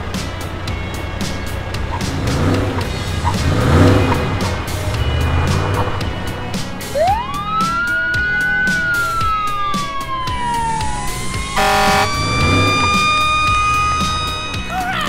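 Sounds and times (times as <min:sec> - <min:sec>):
siren wailing: 0:03.8 - 0:15.0.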